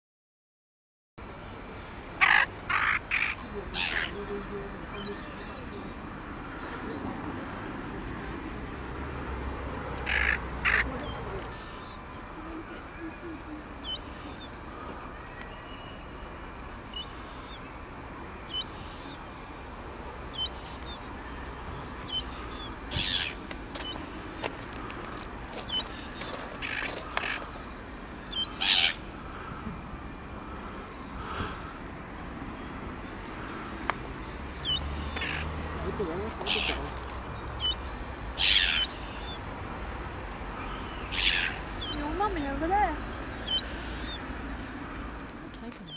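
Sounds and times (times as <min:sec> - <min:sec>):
crow cawing: 0:02.2 - 0:04.1, 0:10.1 - 0:10.9, 0:26.6 - 0:27.5, 0:28.6 - 0:29.6, 0:35.2 - 0:35.5, 0:41.1 - 0:41.7
high chirping bird calls: 0:09.8 - 0:16.1, 0:16.9 - 0:17.6, 0:18.5 - 0:19.2, 0:20.3 - 0:21.1, 0:22.0 - 0:24.6, 0:25.5 - 0:27.6, 0:28.2 - 0:29.0, 0:34.6 - 0:39.6, 0:40.6 - 0:44.3.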